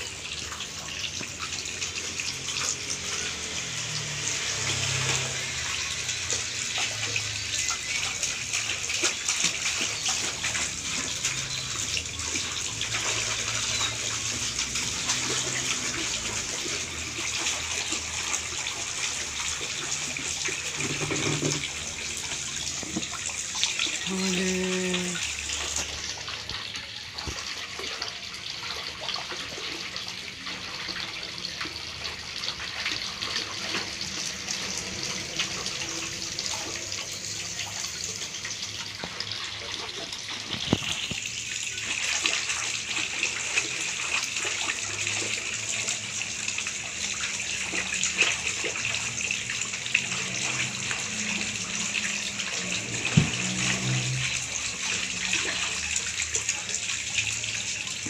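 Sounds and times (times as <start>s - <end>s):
water splashing in a basin: 0.0s - 58.0s.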